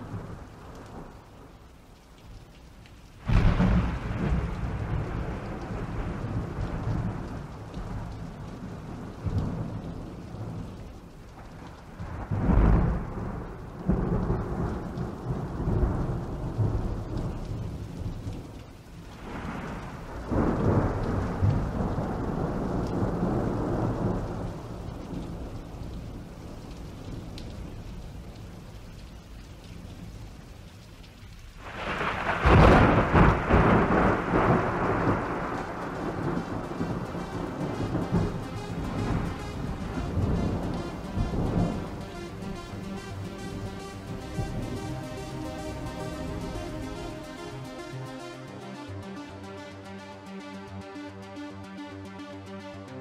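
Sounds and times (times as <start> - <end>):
steady rain: 0.0 - 53.0
rolling thunder: 3.2 - 10.8, 11.4 - 27.4, 31.6 - 47.6.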